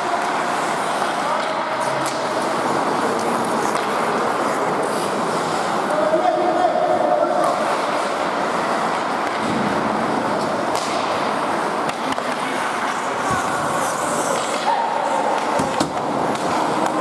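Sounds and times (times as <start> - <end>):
sticks clacking on puck: 0.0 - 4.2, 10.4 - 17.0
skate blades scraping ice: 0.0 - 5.9, 7.4 - 17.0.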